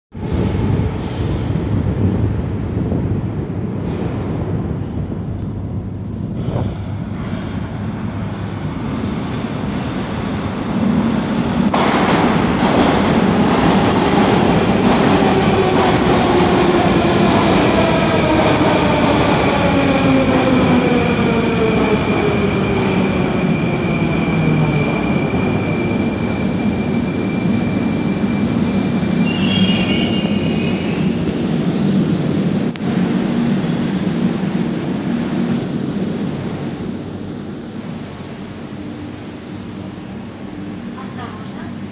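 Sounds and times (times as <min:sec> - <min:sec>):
brief wavering brake squeal: 0:25.6 - 0:31.0.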